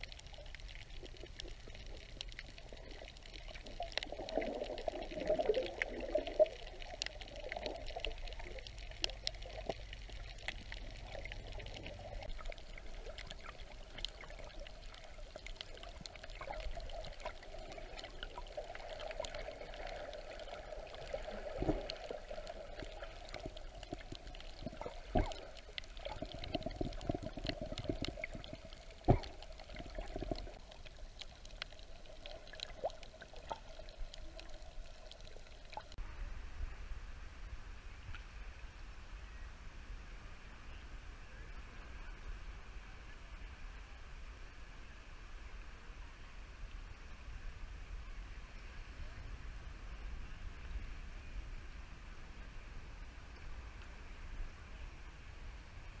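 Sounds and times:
faint scattered clicks: 0:00.0 - 0:36.0
muffled underwater water wash: 0:00.0 - 0:56.0.

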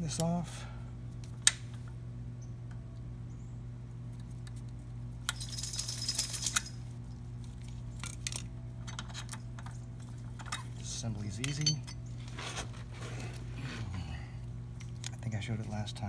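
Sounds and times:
pliers clinking on metal parts: 0:11.4 - 0:12.0.

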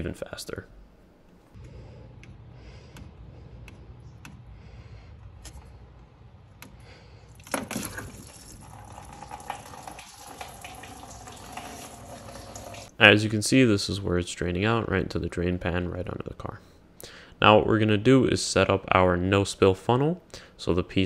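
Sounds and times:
coolant pouring into pan: 0:07.4 - 0:12.9.

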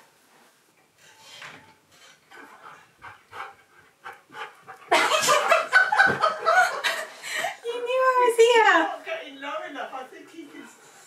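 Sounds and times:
dog panting: 0:02.0 - 0:05.7.

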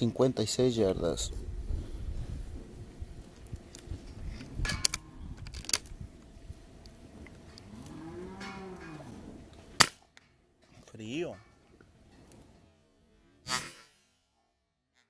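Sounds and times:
cow mooing: 0:07.6 - 0:09.5.

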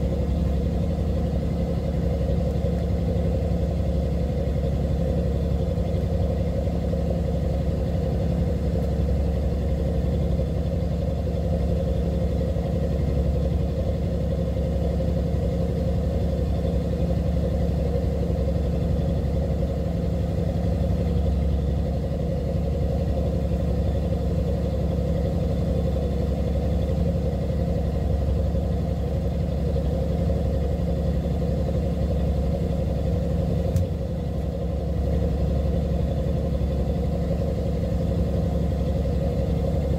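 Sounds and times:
boat engine droning: 0:00.0 - 0:39.9
faint click: 0:33.7 - 0:34.5.

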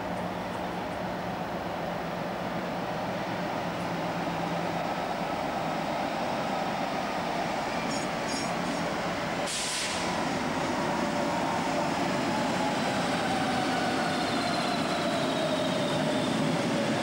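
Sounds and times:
short hiss: 0:09.5 - 0:10.1.

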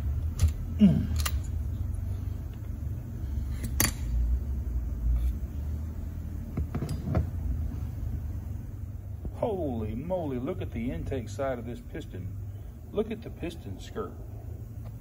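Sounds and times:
low rumbling handling noise: 0:00.0 - 0:10.8.

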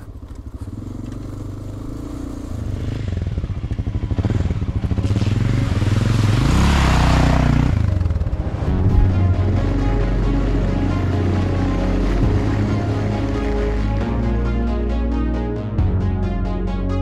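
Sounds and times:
wheels splashing through puddle: 0:00.0 - 0:08.3
motorcycle engine running: 0:00.0 - 0:14.7.

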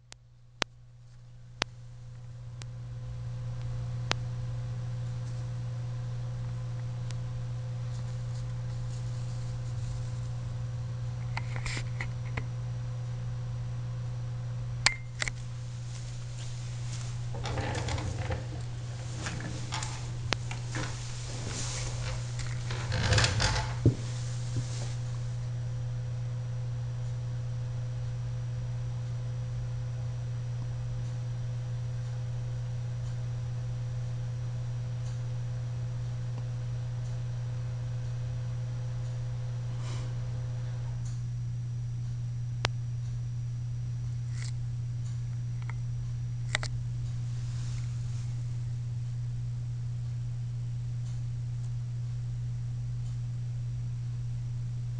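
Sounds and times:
steady low hum: 0:00.0 - 0:54.9
rustling and shuffling: 0:07.5 - 0:12.0, 0:15.4 - 0:25.5, 0:47.0 - 0:48.7.

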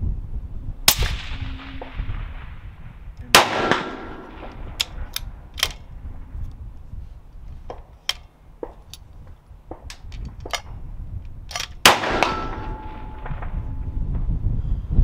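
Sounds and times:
suppressed rifle shot: 0:00.9 - 0:02.6, 0:03.3 - 0:05.8, 0:11.8 - 0:13.8.

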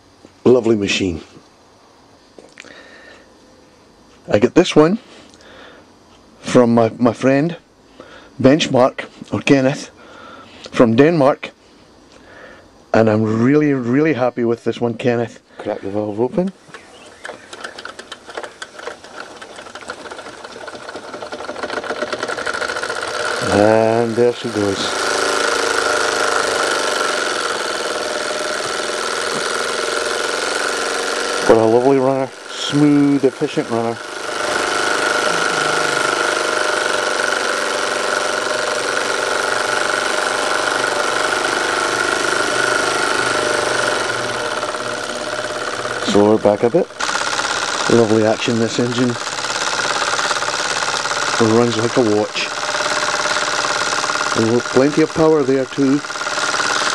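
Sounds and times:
toy steam engine clicking: 0:16.4 - 0:56.9.

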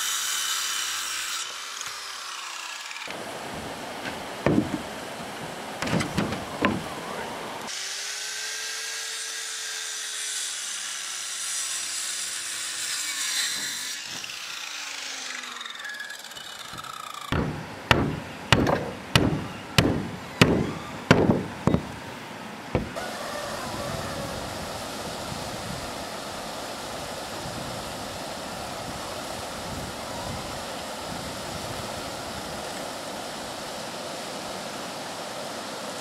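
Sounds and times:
hand tool striking wood: 0:04.5 - 0:04.8, 0:05.8 - 0:06.8, 0:16.7 - 0:22.0, 0:22.8 - 0:23.0
steady hiss: 0:10.6 - 0:36.0.

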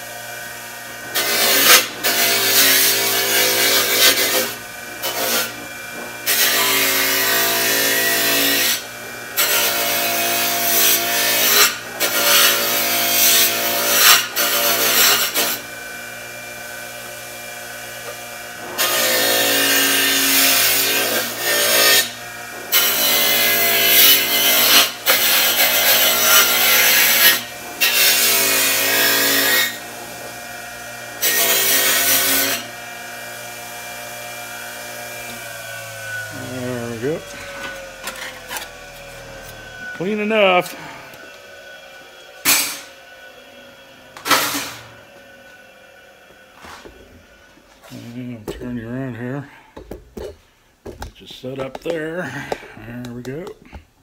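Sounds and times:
bench grinder motor hum: 0:00.0 - 0:48.0
metal grinding on wheel: 0:01.0 - 0:12.7, 0:35.2 - 0:41.3.

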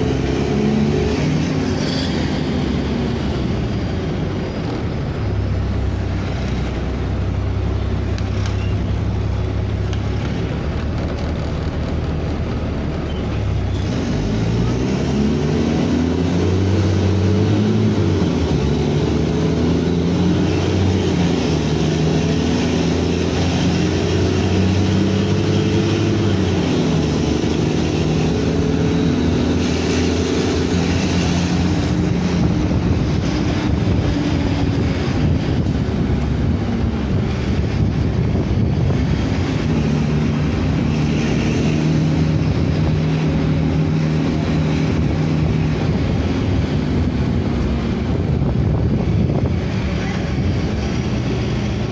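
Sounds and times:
bus diesel engine revving: 0:00.0 - 0:51.9.

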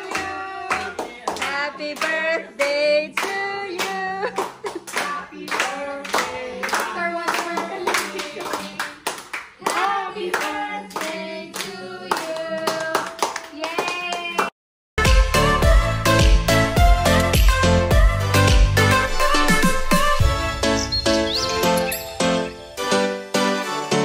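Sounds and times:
group of people singing: 0:00.0 - 0:13.2
people clapping in rhythm: 0:00.0 - 0:14.5.

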